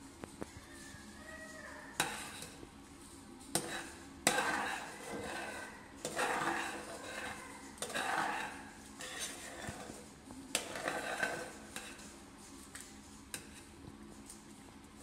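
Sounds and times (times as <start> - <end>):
metal spatula scraping pan: 1.9 - 2.6, 3.5 - 12.2, 13.3 - 13.7.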